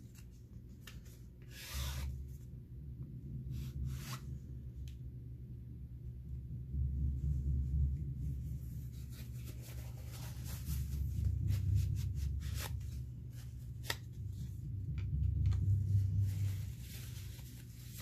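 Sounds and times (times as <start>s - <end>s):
low steady hum: 0.0s - 18.0s
paper towel crinkling: 8.7s - 14.5s, 15.3s - 18.0s.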